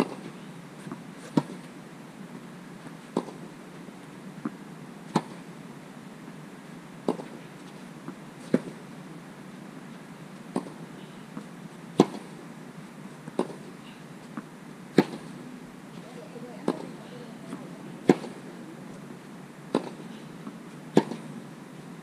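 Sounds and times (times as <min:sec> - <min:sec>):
tennis balls hit by racquets: 0:03.1 - 0:03.4, 0:04.4 - 0:05.4, 0:07.0 - 0:07.5, 0:10.5 - 0:10.8, 0:11.4 - 0:12.4, 0:13.3 - 0:13.7, 0:14.3 - 0:21.3
tennis balls bouncing on court: 0:03.2 - 0:03.4, 0:07.0 - 0:07.4, 0:10.5 - 0:10.8, 0:11.4 - 0:12.3, 0:13.3 - 0:13.7, 0:14.3 - 0:15.3, 0:15.9 - 0:19.0, 0:19.7 - 0:21.3.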